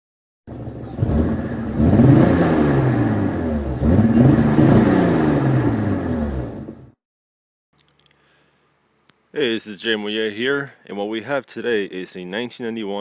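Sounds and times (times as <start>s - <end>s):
car engine revving: 0.5s - 7.0s.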